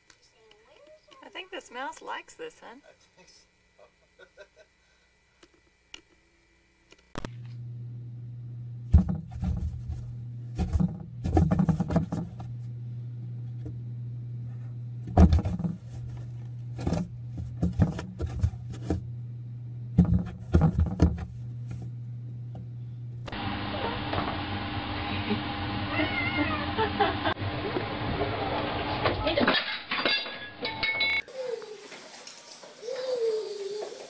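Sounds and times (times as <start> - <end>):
steady low hum: 0.0 - 29.3.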